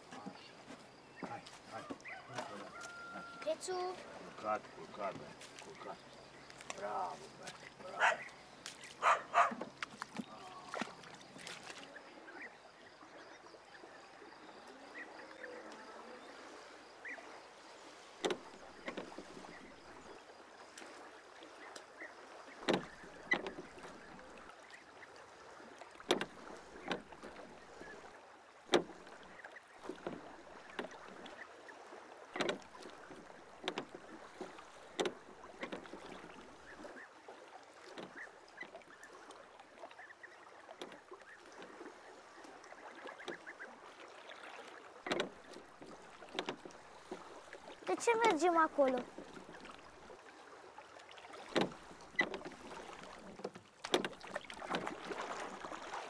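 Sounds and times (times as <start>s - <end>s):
faint water wash: 0.0s - 56.0s
oars knocking in oarlocks: 6.5s - 11.8s, 18.2s - 20.1s, 22.6s - 24.5s, 25.9s - 28.1s, 28.7s - 31.4s, 32.4s - 36.9s, 45.0s - 50.2s, 51.2s - 56.0s.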